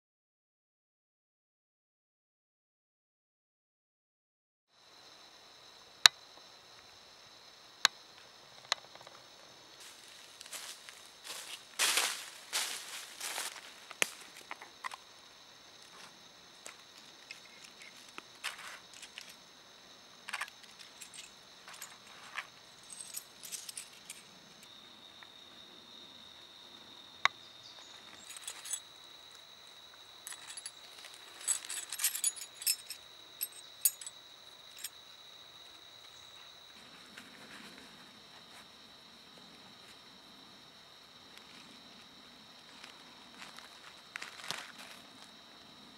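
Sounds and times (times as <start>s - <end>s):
small rustles: 28.0s - 28.8s, 30.3s - 34.1s
stone flakes clinking: 30.3s - 34.1s.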